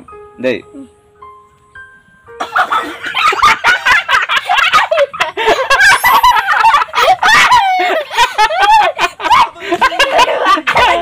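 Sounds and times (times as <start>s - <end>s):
man laughing: 2.4s - 11.0s
boy laughing shrieking: 4.5s - 11.0s.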